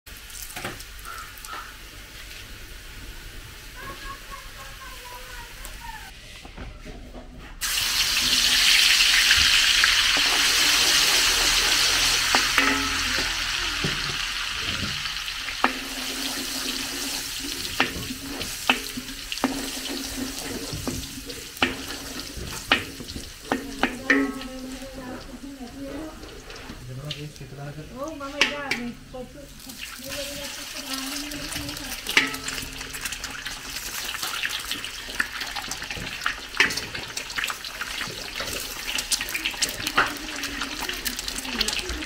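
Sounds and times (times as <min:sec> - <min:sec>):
garlic sizzling in hot oil: 0:00.1 - 0:06.1, 0:07.6 - 0:42.0
metal ladle clinking against wok: 0:12.1 - 0:14.8, 0:15.6 - 0:24.9, 0:32.1 - 0:33.5.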